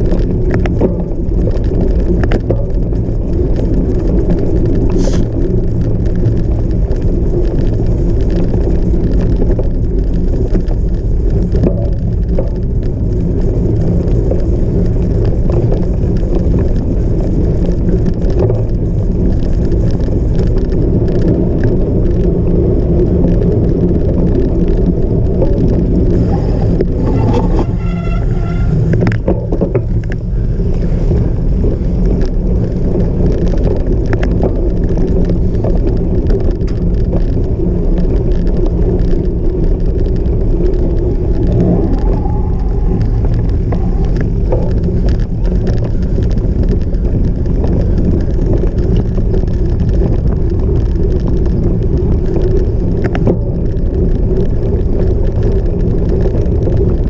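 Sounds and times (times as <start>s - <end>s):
bike rattling over rough ground: 0.0s - 57.0s
short pitched squeal: 26.3s - 28.9s.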